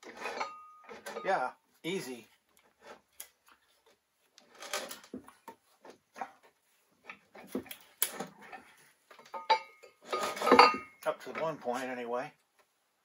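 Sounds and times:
metal clunk: 0.0 - 1.3, 7.1 - 11.5
metal knocks and scrapes: 0.0 - 1.3, 4.4 - 11.9.

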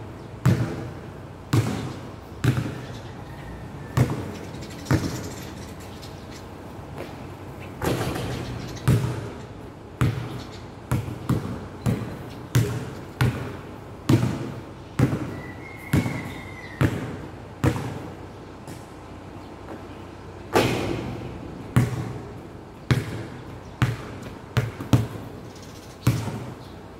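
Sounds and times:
basketball bouncing on hard court: 0.4 - 0.9, 1.5 - 2.8, 4.0 - 4.3, 8.8 - 9.3, 10.0 - 15.3, 15.9 - 16.2, 16.8 - 18.1, 21.7 - 25.3, 26.0 - 26.6.

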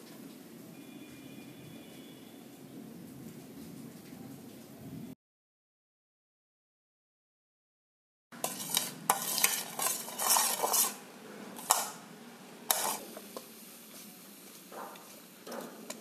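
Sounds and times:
metal spoon clinking on pan: 8.4 - 11.0, 11.6 - 12.0, 12.7 - 13.2
spices sizzling in hot oil: 8.4 - 16.0.

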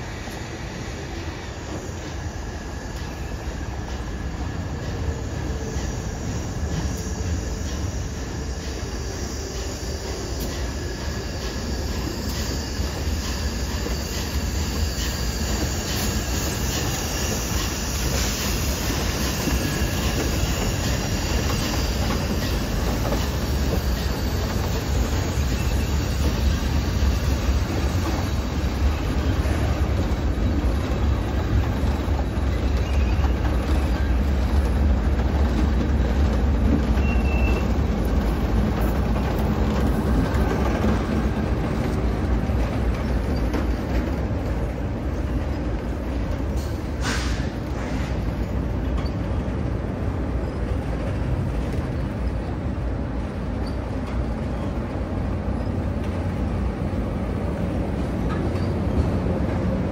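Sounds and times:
high wheel squeal: 0.0 - 35.6, 36.3 - 44.3, 58.3 - 59.2
train wheels rumbling on bridge: 0.0 - 59.9.

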